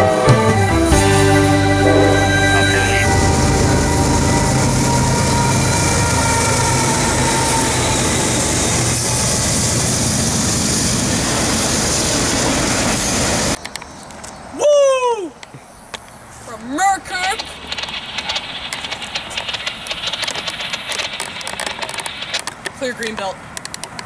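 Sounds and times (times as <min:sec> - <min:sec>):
locomotive engine drone: 0:00.0 - 0:13.6, 0:17.3 - 0:22.8
train wheels rumbling on rails: 0:01.0 - 0:13.6, 0:17.1 - 0:24.0.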